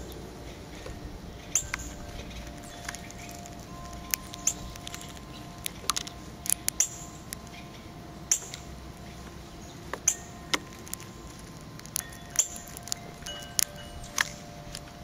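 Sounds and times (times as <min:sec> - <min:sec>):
bird cracking seed hulls: 0:01.6 - 0:07.6, 0:09.9 - 0:14.9.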